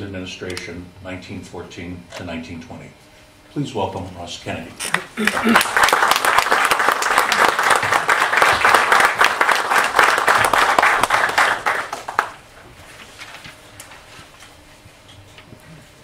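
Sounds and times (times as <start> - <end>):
audience applauding: 4.9 - 12.4.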